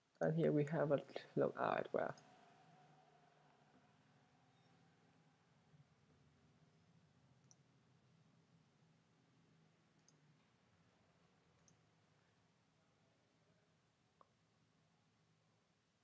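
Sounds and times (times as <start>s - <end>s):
faint low hum: 0.0s - 16.0s
computer mouse clicks: 10.0s - 10.2s, 11.6s - 11.8s.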